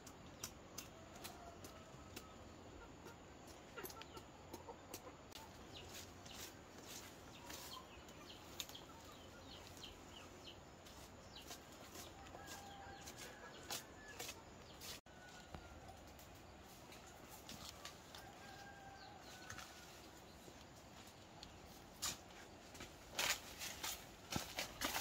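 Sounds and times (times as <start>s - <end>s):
chickens clucking: 0.1s - 14.8s.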